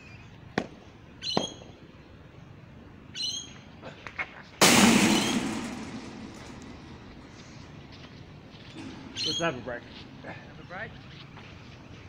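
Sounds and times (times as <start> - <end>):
bird chirp: 1.1 - 2.1, 3.1 - 3.7, 8.6 - 9.8
sharp knocks: 4.6 - 7.1.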